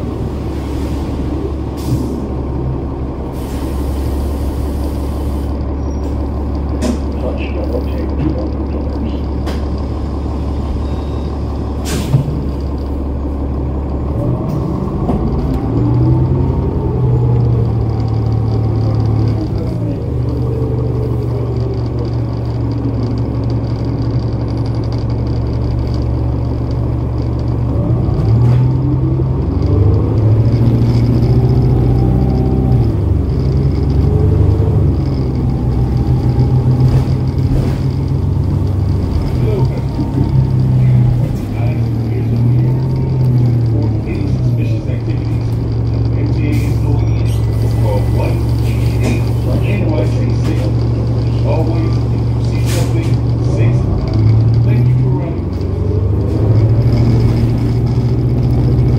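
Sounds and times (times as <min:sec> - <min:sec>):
bus diesel engine: 0:00.0 - 0:58.9.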